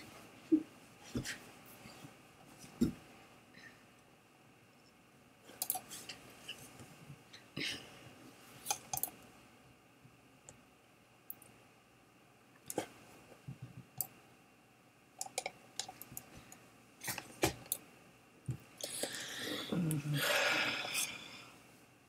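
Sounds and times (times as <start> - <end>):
computer mouse clicks: 5.6 - 5.9, 8.7 - 9.2, 15.2 - 16.3.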